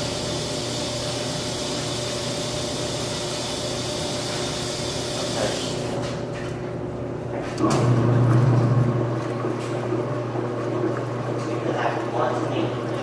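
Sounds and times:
water spraying into tub: 0.0s - 6.0s
washing machine low hum: 0.0s - 13.0s.

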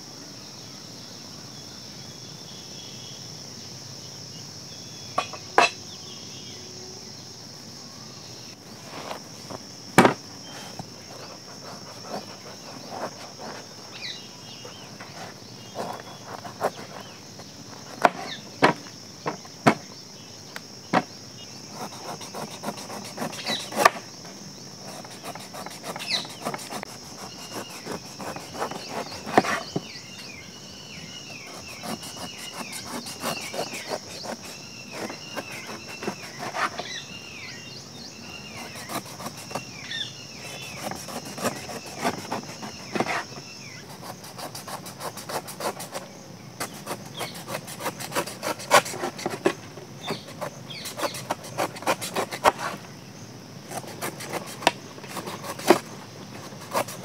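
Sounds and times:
high insect drone: 0.0s - 57.0s
knife cutting on wooden board: 5.2s - 5.8s, 8.9s - 13.7s, 14.6s - 19.4s, 21.7s - 24.0s, 24.8s - 29.9s, 31.3s - 37.0s, 38.5s - 39.6s, 40.4s - 46.0s, 46.6s - 52.8s, 53.7s - 57.0s
rubbing and scraping: 8.8s - 19.8s, 21.7s - 24.1s, 24.8s - 30.3s, 31.3s - 37.0s, 38.4s - 39.7s, 40.4s - 52.9s, 53.7s - 57.0s.

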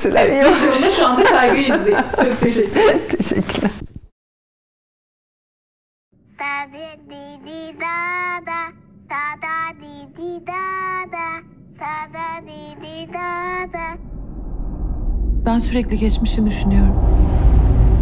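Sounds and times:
child singing: 6.4s - 14.0s.

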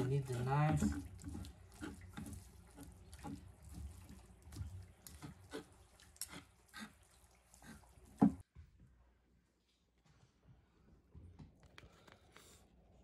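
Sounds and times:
wet squelches of meat: 0.0s - 8.4s.

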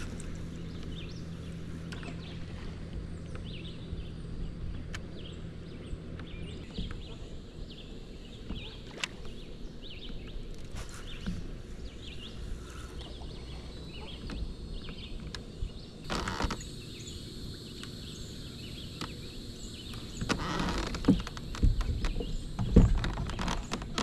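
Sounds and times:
birds chirping: 0.0s - 24.0s
low wind rumble: 0.0s - 24.0s
fishing gear rustling and knocking: 20.2s - 24.0s.

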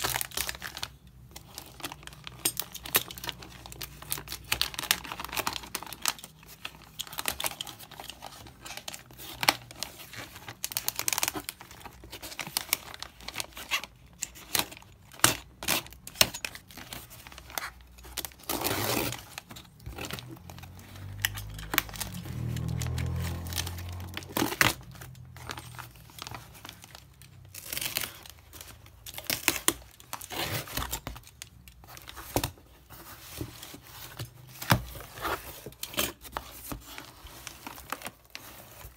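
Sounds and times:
plastic bag crinkling and rustling: 0.0s - 38.9s
plastic tearing: 0.0s - 38.9s.

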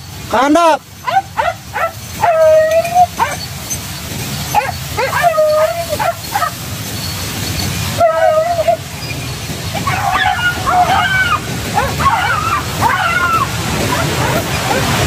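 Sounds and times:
hunting dogs baying and yelping: 0.9s - 15.0s.

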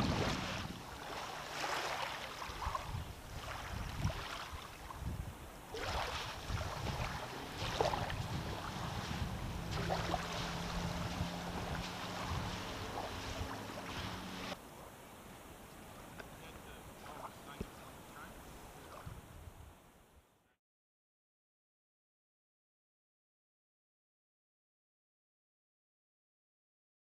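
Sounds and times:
wind buffeting microphone: 0.0s - 14.6s, 18.8s - 19.8s
low motor hum: 6.5s - 14.6s.

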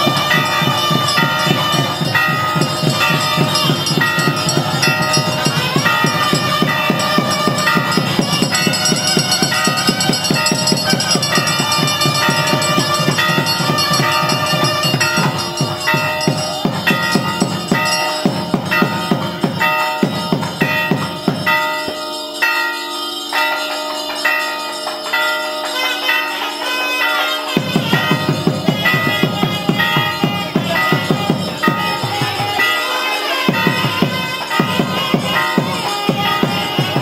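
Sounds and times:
fast drumming: 0.0s - 22.4s, 27.5s - 37.0s
held stepwise melody: 0.0s - 37.0s.

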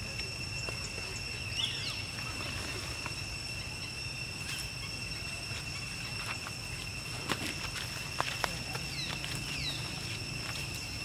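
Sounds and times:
high-pitched insect drone: 0.0s - 11.0s.

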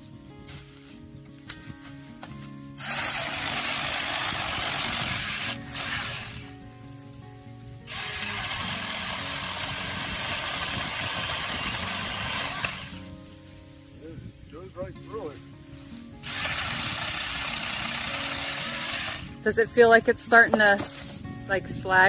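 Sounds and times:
background music: 0.0s - 22.0s
electric chainsaw cutting wood: 2.8s - 6.5s, 7.9s - 13.1s, 16.2s - 19.4s.

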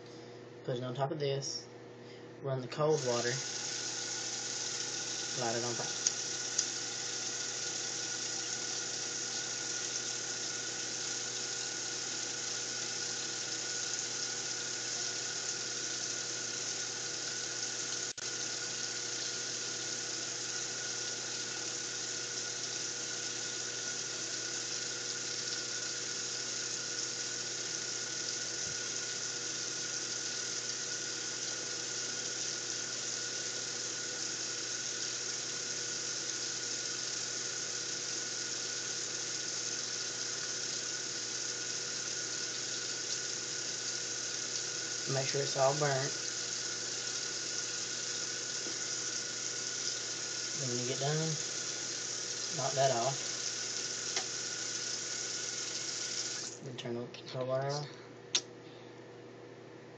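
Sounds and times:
faucet running into sink: 2.8s - 56.6s
sharp click: 57.7s - 58.5s.

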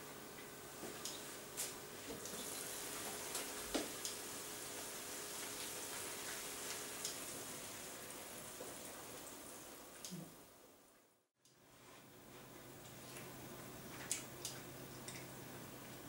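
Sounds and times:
risotto sizzling in a pan: 2.1s - 10.0s.

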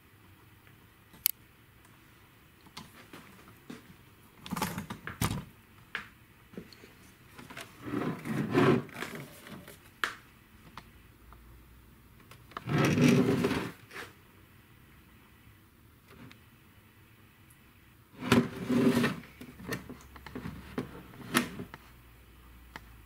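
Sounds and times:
rubbing scraping sounds: 7.6s - 9.8s, 12.6s - 14.2s, 18.2s - 19.3s.

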